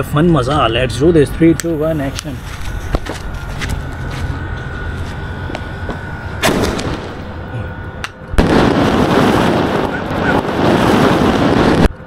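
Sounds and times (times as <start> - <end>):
firework rushing noise: 5.4 - 11.9
firework bangs: 5.5 - 7.4, 8.4 - 11.9.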